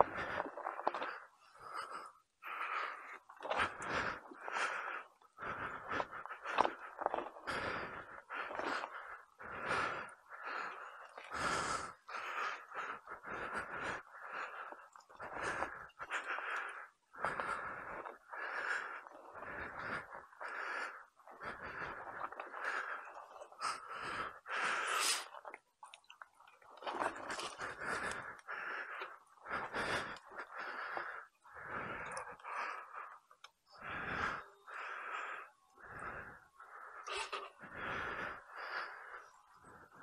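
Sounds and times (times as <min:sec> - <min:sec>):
person breathing hard: 0:00.0 - 0:25.6, 0:26.8 - 0:40.0
person sniffing: 0:24.9 - 0:25.3.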